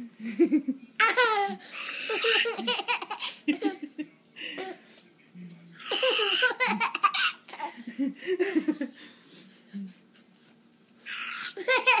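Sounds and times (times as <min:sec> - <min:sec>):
toddler giggling: 0:11.4 - 0:12.0.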